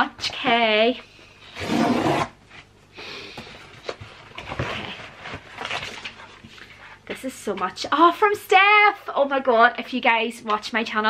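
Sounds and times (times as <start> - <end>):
gift packaging rustling: 3.7 - 6.8.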